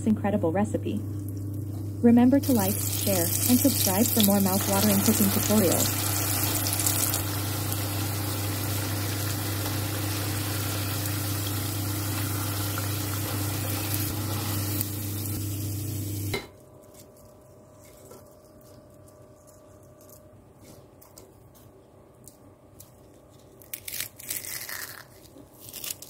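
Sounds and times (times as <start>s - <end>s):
low hum: 0.0s - 20.5s
food deep-frying in oil: 2.4s - 16.4s.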